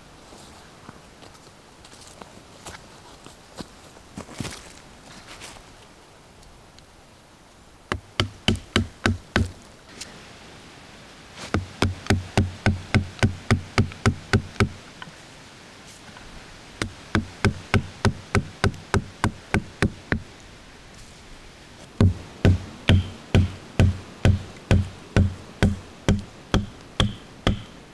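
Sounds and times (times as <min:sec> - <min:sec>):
hatchet chopping branch: 0:07.9 - 0:09.6, 0:11.5 - 0:14.8, 0:16.8 - 0:20.2, 0:22.0 - 0:27.8.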